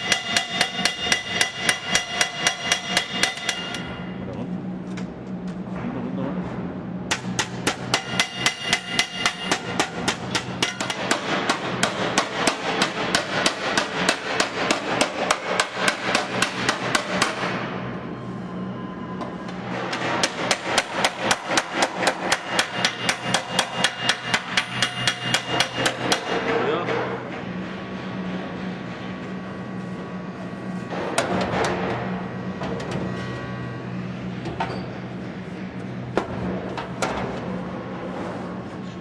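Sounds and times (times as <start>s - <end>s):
hammer striking sheet metal: 0.0s - 4.1s, 7.1s - 17.6s, 19.9s - 27.1s.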